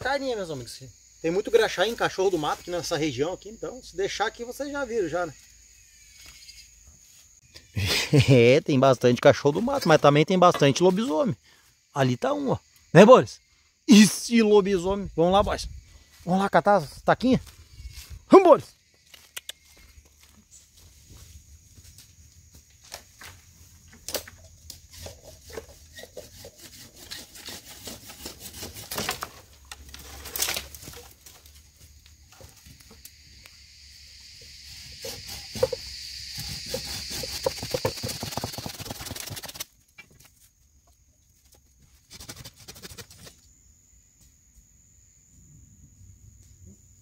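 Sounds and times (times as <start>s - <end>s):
twigs snapping: 29.1s - 31.5s.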